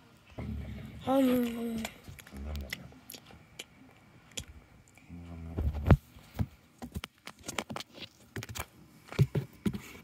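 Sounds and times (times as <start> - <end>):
small objects knocking and rustling: 5.7 - 9.8.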